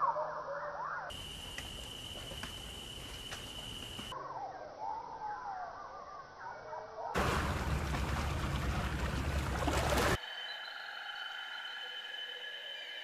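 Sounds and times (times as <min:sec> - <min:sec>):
steady high whine over hiss: 0:01.1 - 0:04.1.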